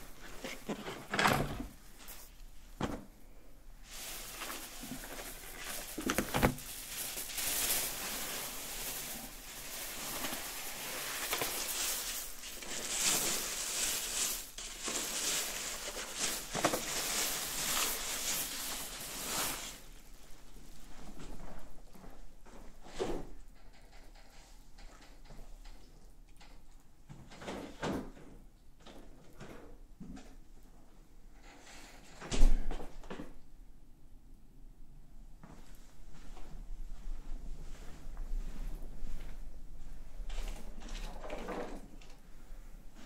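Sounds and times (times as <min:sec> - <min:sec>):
plastic and paper rustling: 0:00.0 - 0:03.0, 0:03.8 - 0:21.7.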